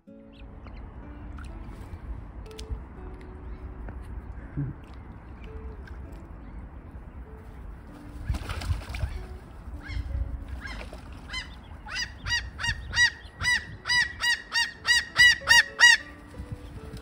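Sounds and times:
gull yelping calls: 9.8 - 16.1.

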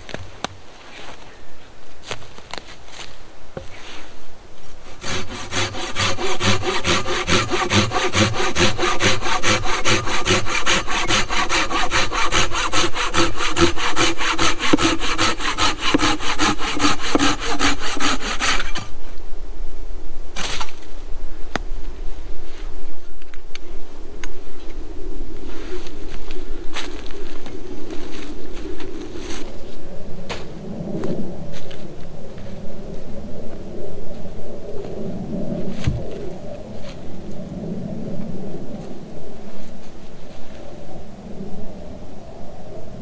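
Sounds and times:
hand saw cutting wood: 4.8 - 18.9.

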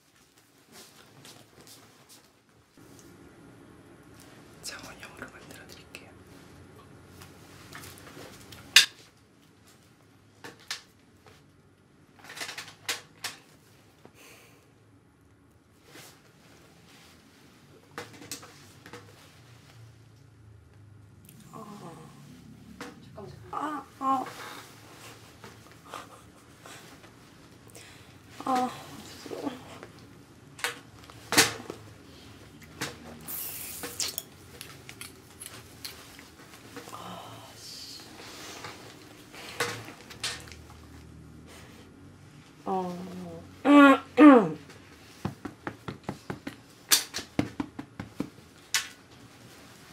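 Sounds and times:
short hiss: 33.3 - 34.2.

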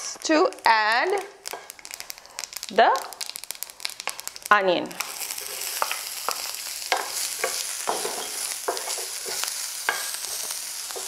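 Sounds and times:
onion sizzling in a frying pan: 0.0 - 11.0
wooden spoon scraping a pan: 5.0 - 11.0.

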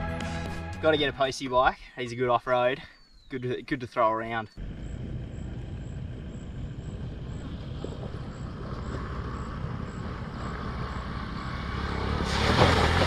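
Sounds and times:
motorbike engine running: 4.6 - 12.1.

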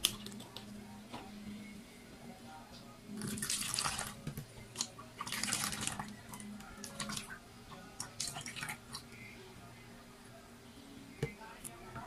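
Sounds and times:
liquid pouring through a funnel: 3.2 - 4.2, 4.8 - 7.4.

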